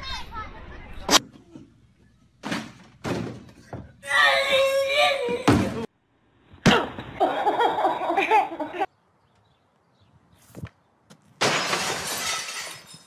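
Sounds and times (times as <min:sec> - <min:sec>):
loud breaking crash: 0:11.4 - 0:13.0.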